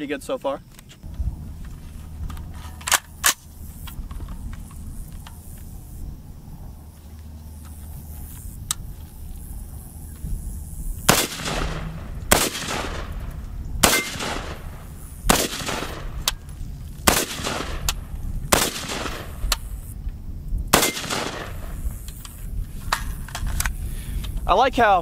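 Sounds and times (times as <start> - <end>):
rifle shots with echo: 11.1 - 16.4, 17.0 - 19.5, 20.7 - 21.8.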